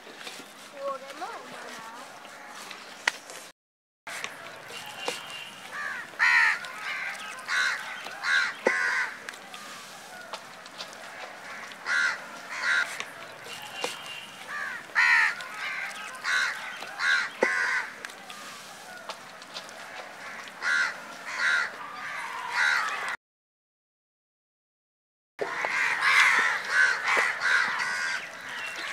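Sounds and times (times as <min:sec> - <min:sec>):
crows cawing: 0:02.3 - 0:02.8, 0:05.0 - 0:09.3, 0:10.1 - 0:18.0, 0:18.8 - 0:23.2, 0:25.4 - 0:28.9.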